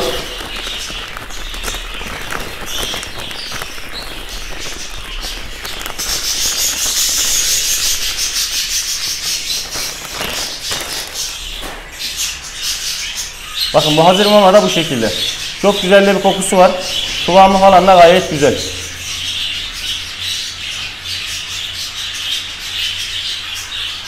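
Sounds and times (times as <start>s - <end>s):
foil bag crinkling: 0.0s - 12.1s.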